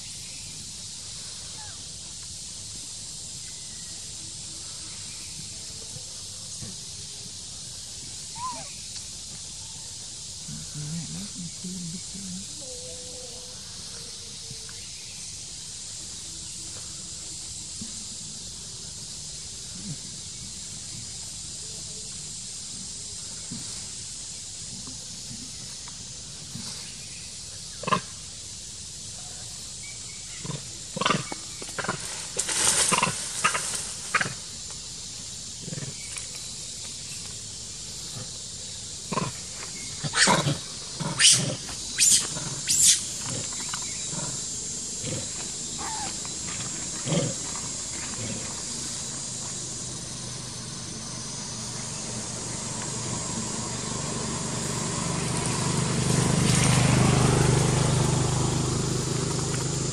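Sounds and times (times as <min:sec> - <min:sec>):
monkeys giving harsh cries: 0:08.4 - 0:08.7, 0:41.1 - 0:43.2, 0:45.8 - 0:46.2
motor engine approaching: 0:40.5 - 0:59.9.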